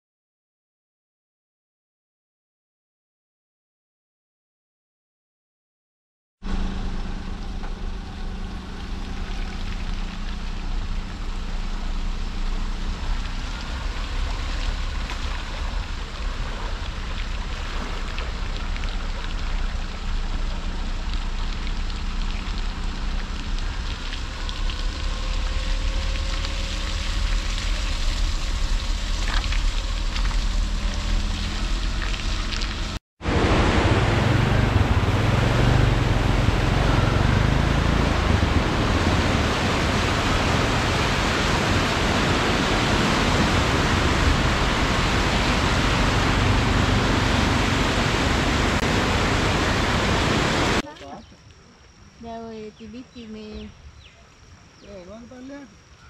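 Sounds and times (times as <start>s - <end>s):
faint engine hum: 6.4s - 56.0s
floodwater churning over rapids: 8.7s - 51.0s
river rushing: 25.0s - 50.9s.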